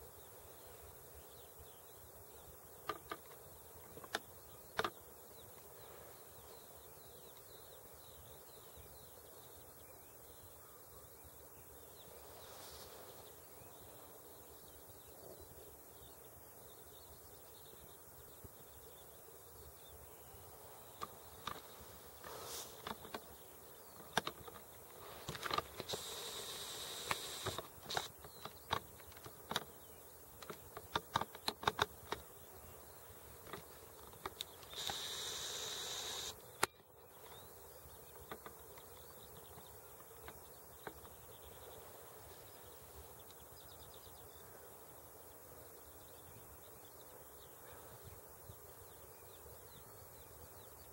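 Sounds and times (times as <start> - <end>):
faint outdoor background: 0.0 - 50.9
camera zoom motor buzzing: 25.9 - 28.1, 34.6 - 36.4.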